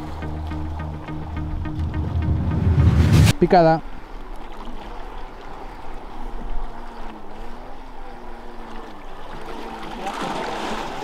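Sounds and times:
wind rumbling on microphone: 1.6s - 3.4s.

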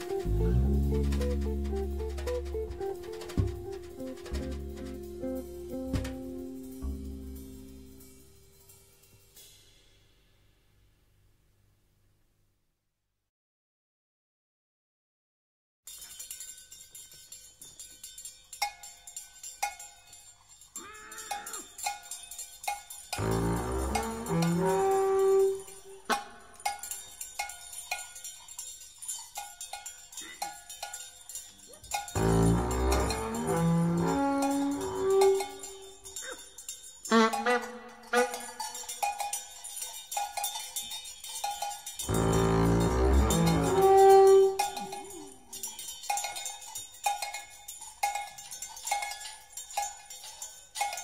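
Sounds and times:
faint low sliding note: 0.0s - 8.2s
cowbell strikes: 15.9s - 51.0s.

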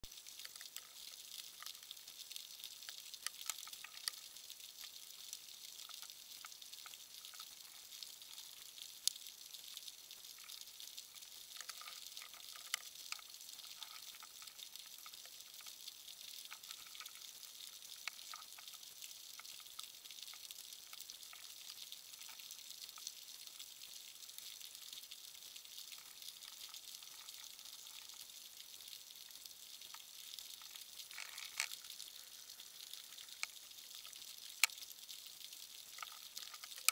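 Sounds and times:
snapping shrimp crackle: 30.6s - 33.6s.

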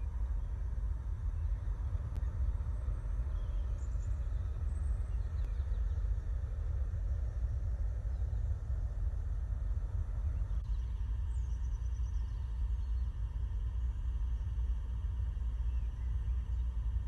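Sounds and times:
faint bird chirps: 15.4s - 17.0s.

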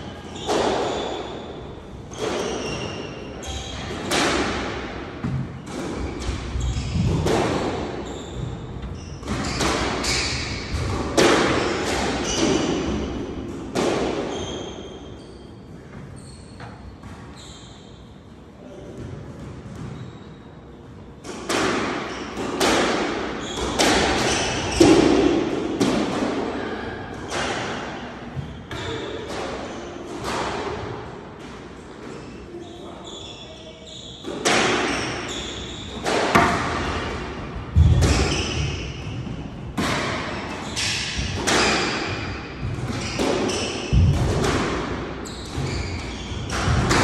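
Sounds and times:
sneakers squeaking on wooden floor: 0.2s - 3.9s, 5.2s - 10.9s, 14.3s - 18.1s, 19.4s - 20.5s, 23.4s - 25.0s, 28.3s - 29.1s, 32.1s - 39.1s, 41.6s - 44.0s, 45.2s - 46.9s
squash ball hitting rackets: 2.1s - 14.4s, 21.2s - 32.2s, 34.2s - 47.0s
ball smacking court walls: 36.0s - 38.6s.

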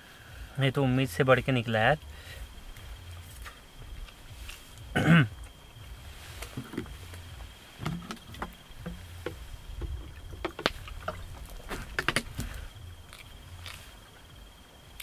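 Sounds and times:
person eating by hand: 8.2s - 15.0s.

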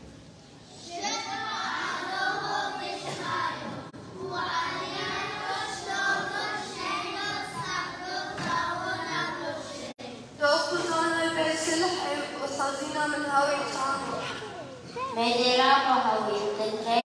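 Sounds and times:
children's choir singing: 1.0s - 10.1s.

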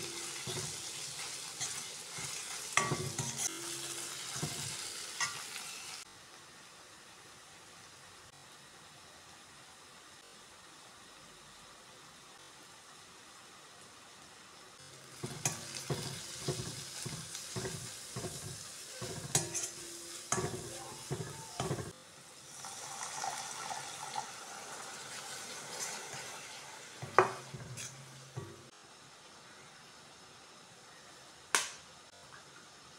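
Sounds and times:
ladle scraping and clattering in pan: 0.0s - 3.5s, 15.2s - 22.0s, 27.0s - 28.7s
frying sizzle: 0.0s - 32.9s
ladle knocking against pan: 15.2s - 19.7s.

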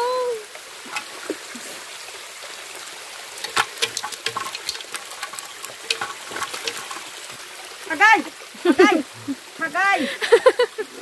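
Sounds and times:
stream water running over rocks: 0.0s - 11.0s
small splashes: 0.6s - 9.4s.

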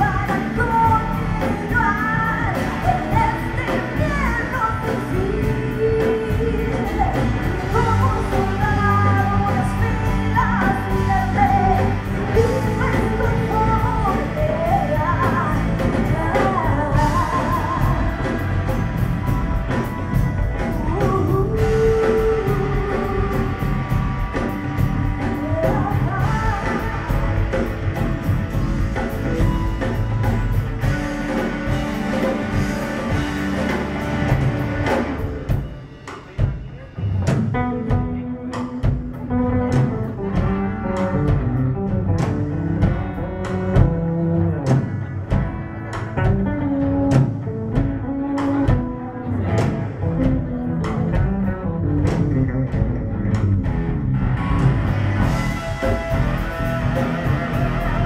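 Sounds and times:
woman singing: 0.0s - 28.1s
electric bass: 0.0s - 35.8s, 36.9s - 58.0s
drums: 0.0s - 58.0s
electric guitars: 0.0s - 58.0s.

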